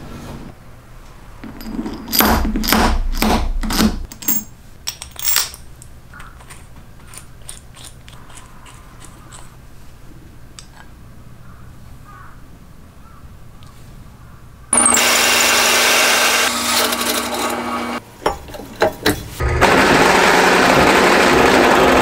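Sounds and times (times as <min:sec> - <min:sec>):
steel ball bearings clinking: 0:04.1 - 0:05.8.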